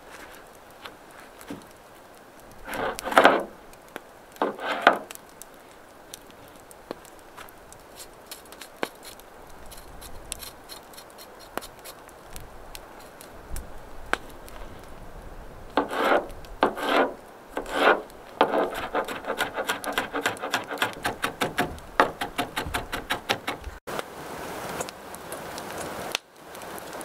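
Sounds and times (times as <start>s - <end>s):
scraping into steel bowl: 2.6s - 3.5s, 4.4s - 5.1s, 15.8s - 23.7s
knife chopping on cutting board: 17.6s - 23.7s.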